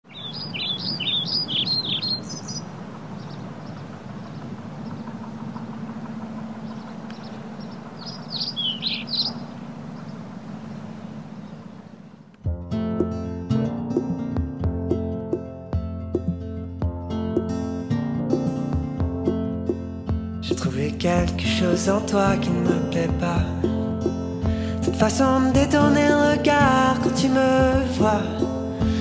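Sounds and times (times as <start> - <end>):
songbird chirping: 0.0 - 12.4
low street hum: 0.1 - 12.4
music: 12.4 - 29.0.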